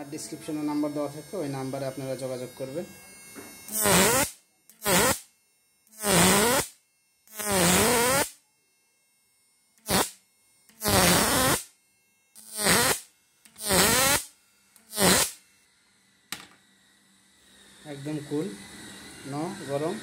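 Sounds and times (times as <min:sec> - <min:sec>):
short buzzing electric sparks: 0:00.0 - 0:08.4, 0:09.7 - 0:15.6.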